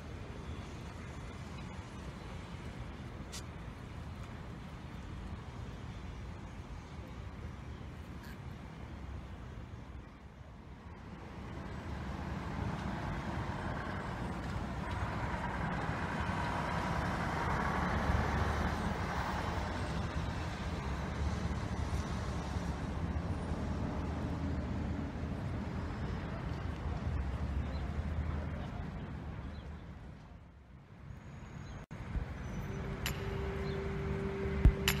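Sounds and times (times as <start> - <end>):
street traffic: 0.0 - 35.0
large vehicle engine humming: 11.6 - 27.9, 31.9 - 35.0.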